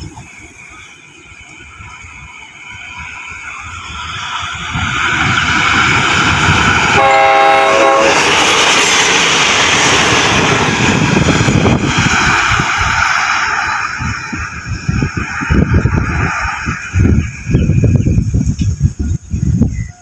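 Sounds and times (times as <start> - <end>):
train passing at speed: 0.0 - 20.0
train horn blast: 6.9 - 8.3.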